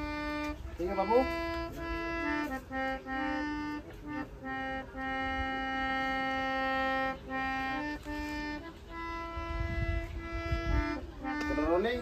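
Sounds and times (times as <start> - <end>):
harmonium playing slow melody: 0.0 - 12.0.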